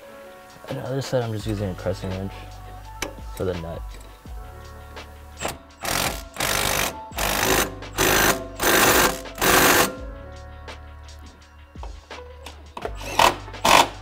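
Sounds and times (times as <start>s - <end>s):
background music: 0.0s - 14.0s
impact wrench hammering: 5.4s - 10.0s.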